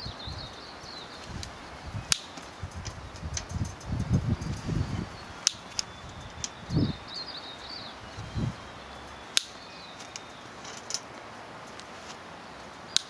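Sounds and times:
bird chirping: 0.0s - 13.0s
crimping tool clicking: 2.1s - 4.6s, 5.4s - 6.6s, 9.1s - 11.1s.

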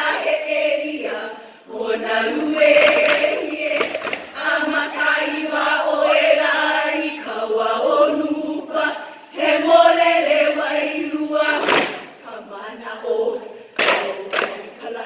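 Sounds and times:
women chanting in unison: 0.0s - 15.0s.

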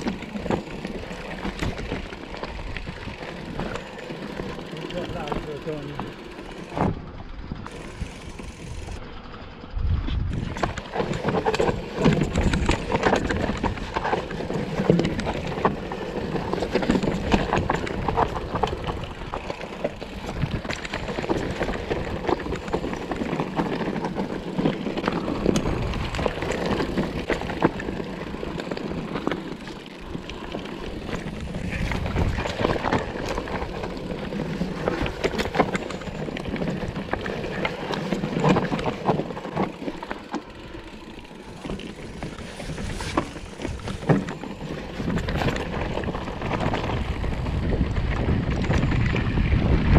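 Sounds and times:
bike tyres crunching over rocks: 0.0s - 9.6s, 10.2s - 49.9s
bike rattling: 0.0s - 49.9s
wind rumble on microphone: 6.7s - 23.5s, 25.0s - 28.0s, 30.9s - 39.4s, 41.6s - 49.9s.

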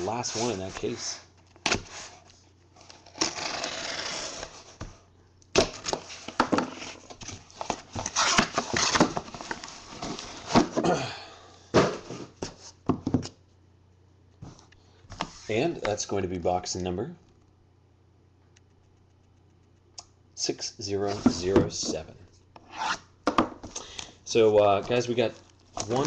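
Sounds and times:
cardboard rustling and scraping: 0.0s - 5.0s, 5.7s - 10.8s, 11.8s - 13.3s, 21.0s - 23.0s, 24.3s - 26.0s
cardboard tearing: 2.9s - 4.7s, 7.9s - 9.6s
box set down: 5.6s - 10.9s, 11.7s - 13.3s.

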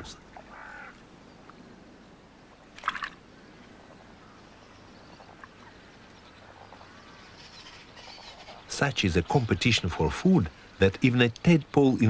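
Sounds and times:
faint wetland ambience: 0.0s - 12.0s
water splash: 2.7s - 3.2s.

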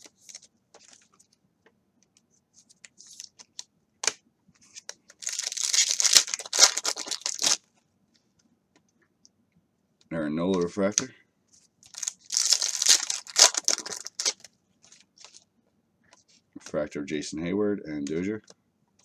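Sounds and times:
wrapper tearing open: 5.2s - 7.6s, 11.9s - 14.5s.

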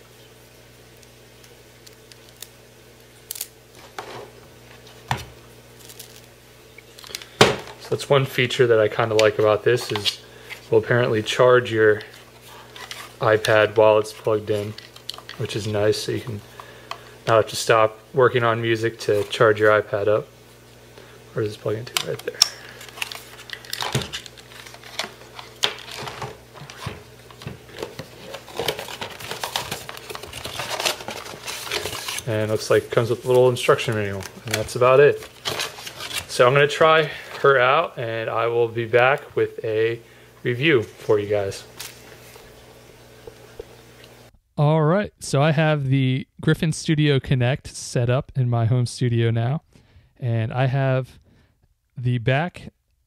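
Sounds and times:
faint steady hum: 0.0s - 53.0s
packaging rustling: 21.7s - 37.6s.

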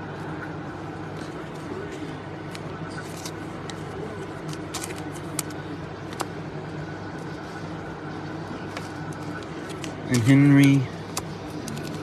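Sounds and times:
steady background hum: 0.0s - 12.0s
trading cards clicking and rustling: 1.1s - 6.5s, 8.6s - 12.0s.

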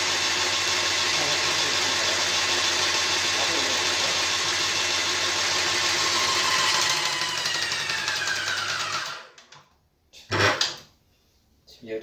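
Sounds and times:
paint sprayer motor and pump: 0.0s - 9.6s.

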